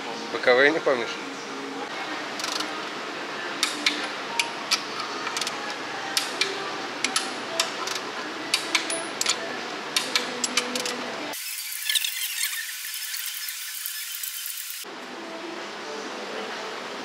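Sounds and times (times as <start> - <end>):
workshop background noise: 0.0 - 17.0
hand ratchet clicking: 2.4 - 2.6, 3.6 - 5.6, 6.2 - 9.4, 10.0 - 11.0.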